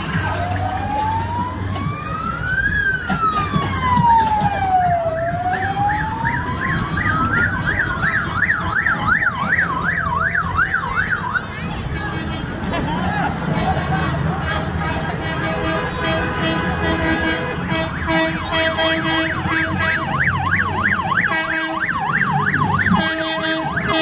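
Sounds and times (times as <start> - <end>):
low rumble of vehicles: 0.0 - 24.0
electronic siren wailing and yelping: 0.3 - 11.5.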